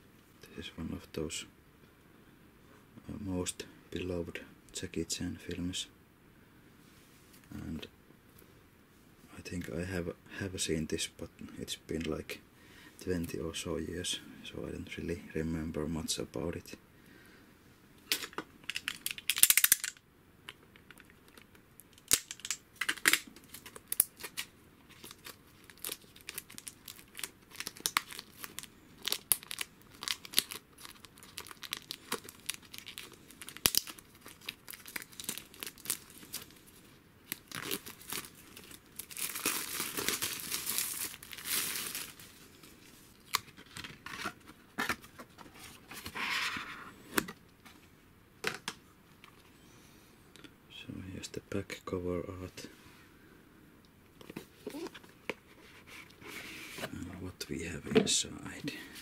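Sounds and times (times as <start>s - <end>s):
plastic wrap tearing and crinkling: 22.0s - 43.8s.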